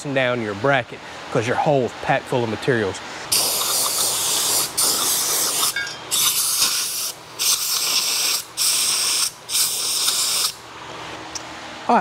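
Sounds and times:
air blow gun hissing blasts: 3.3s - 10.6s.

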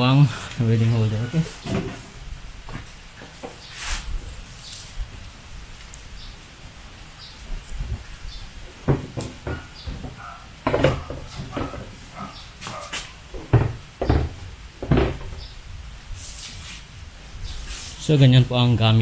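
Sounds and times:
knocks and clunks against metal: 1.6s - 2.1s, 8.8s - 12.7s, 13.3s - 15.5s.

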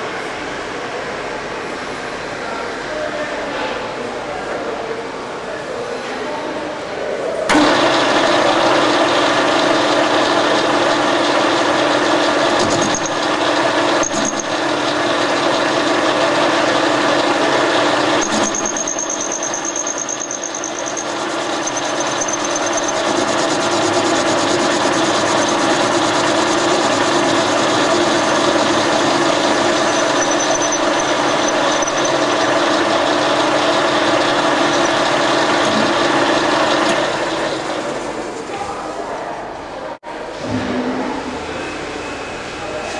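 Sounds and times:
metal lathe hum: 7.5s - 38.2s
high squeal of cutting: 18.2s - 32.6s, 34.4s - 36.2s.

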